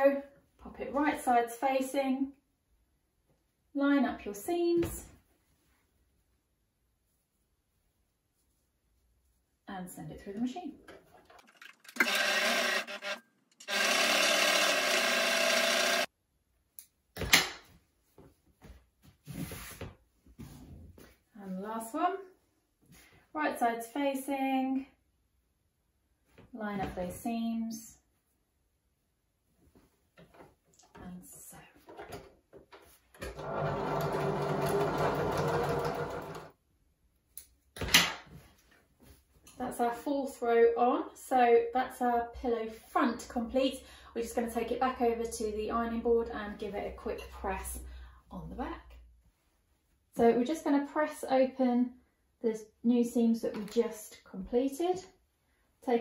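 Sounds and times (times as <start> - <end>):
sewing machine stitching: 11.2 - 16.1, 33.2 - 36.5.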